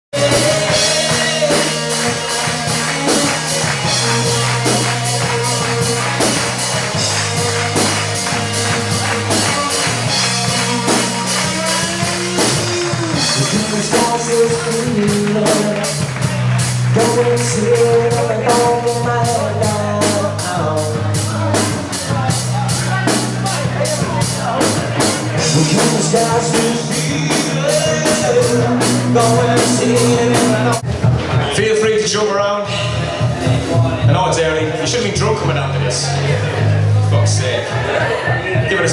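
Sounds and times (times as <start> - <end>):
live rock band playing: 0.1 - 38.9
fast cymbal beat: 0.2 - 30.8
person singing: 0.2 - 30.8.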